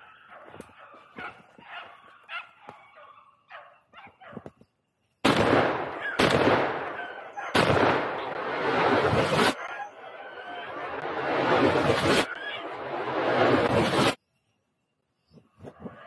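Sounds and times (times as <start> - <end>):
shotgun blasts echoing: 5.2 - 9.6.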